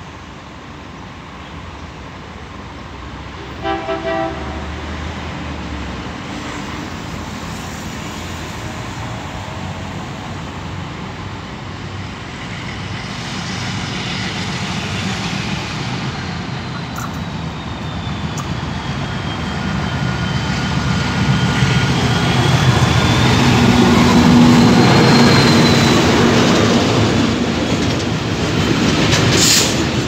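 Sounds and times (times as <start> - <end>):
two-tone locomotive horn blasts: 3.5 - 4.9
diesel locomotive engine running: 6.0 - 30.0.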